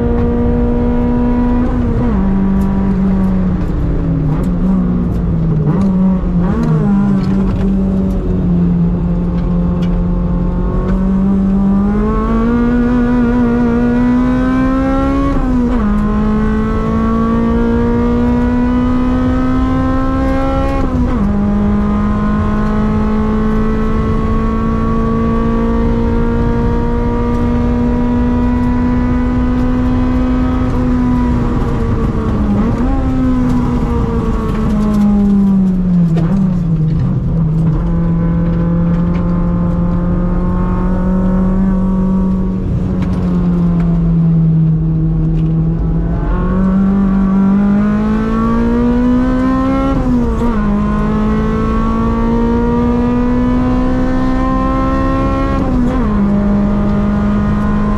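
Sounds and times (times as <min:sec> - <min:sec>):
car engine accelerating hard: 0:00.0 - 0:57.9.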